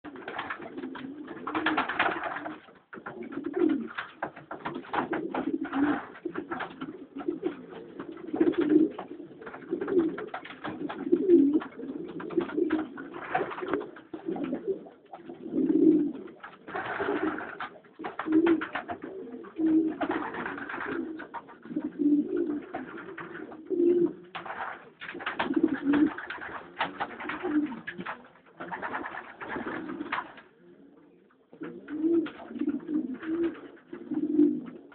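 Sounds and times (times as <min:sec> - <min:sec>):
pigeons cooing: 0:00.0 - 0:34.9.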